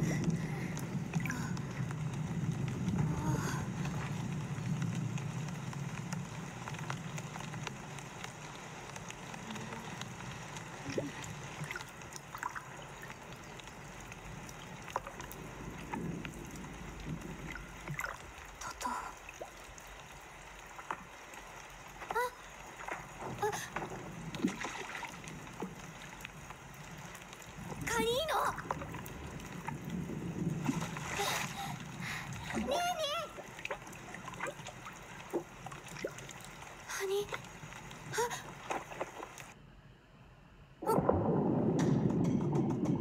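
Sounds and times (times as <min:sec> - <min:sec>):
low rumble: 0:00.0 - 0:08.3, 0:26.3 - 0:32.7, 0:40.8 - 0:43.0
stream water gurgling: 0:00.0 - 0:39.6.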